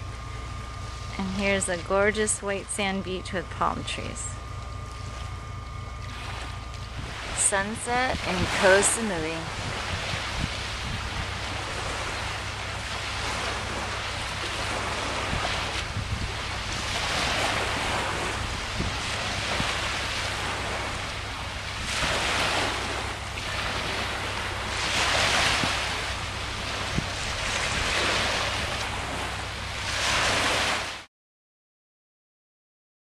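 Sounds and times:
wind rumbling on microphone: 0.0s - 31.0s
sea waves washing onto sand: 7.0s - 31.1s.

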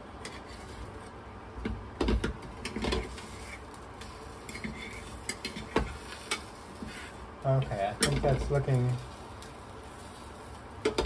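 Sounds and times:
metal utensil scraping frying pan: 2.6s - 7.2s.

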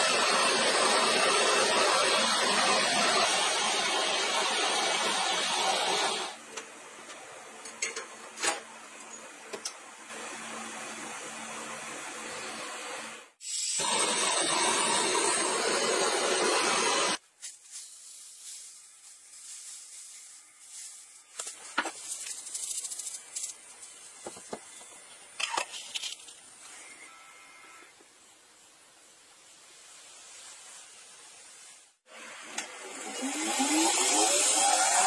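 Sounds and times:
dry leaves pouring from paper bag: 17.2s - 24.0s.

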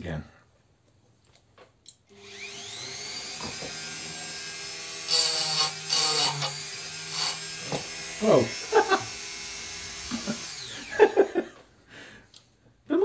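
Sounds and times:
rotary tool motor whining: 2.1s - 11.2s.

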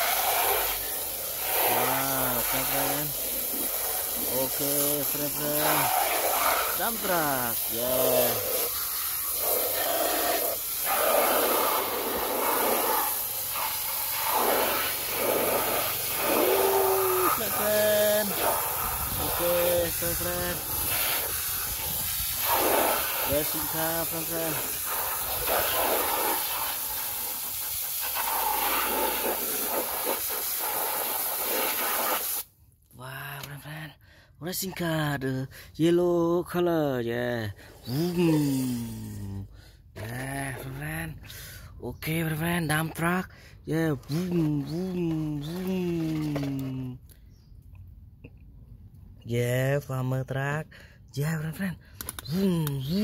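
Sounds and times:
hose spray hissing: 0.0s - 32.5s, 37.6s - 39.5s, 43.9s - 46.8s, 52.2s - 53.0s.

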